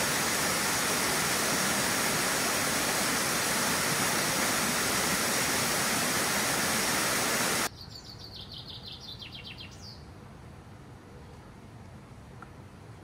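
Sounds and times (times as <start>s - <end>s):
waterfall rushing over rock: 0.0s - 7.7s.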